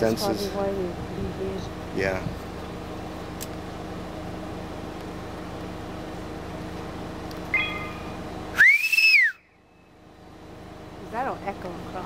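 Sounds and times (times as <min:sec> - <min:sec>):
person whistling loudly: 0:08.6 - 0:09.5.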